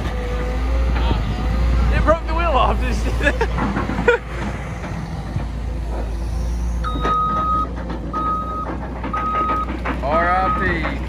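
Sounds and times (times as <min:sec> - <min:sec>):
diesel engine idling: 0:00.0 - 0:11.0
backup alarm beeps: 0:06.8 - 0:09.7.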